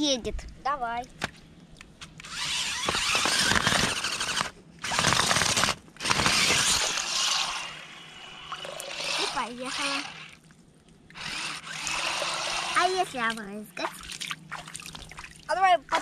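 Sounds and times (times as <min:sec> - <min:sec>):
toy car electric motors whirring: 0:02.2 - 0:10.4, 0:11.1 - 0:13.4.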